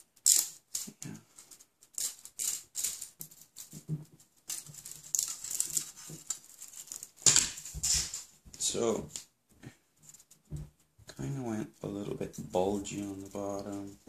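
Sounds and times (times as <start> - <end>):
plastic part handled in hands: 0.2 - 8.4.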